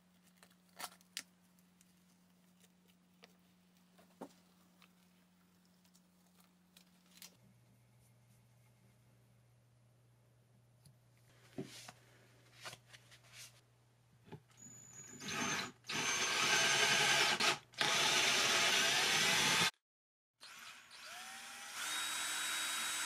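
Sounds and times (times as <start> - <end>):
power drill spinning: 14.6 - 19.7, 20.4 - 23.0.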